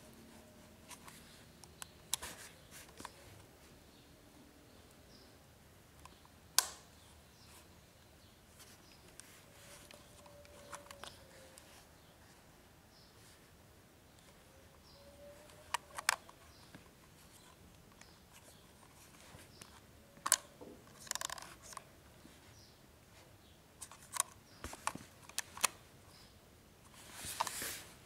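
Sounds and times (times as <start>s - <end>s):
sharp plastic clicks: 6.0s - 6.9s, 19.6s - 21.8s.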